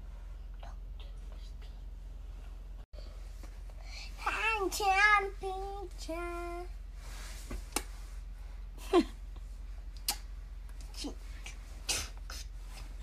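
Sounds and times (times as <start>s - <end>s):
child making sing-song vocal sounds: 4.2s - 6.7s.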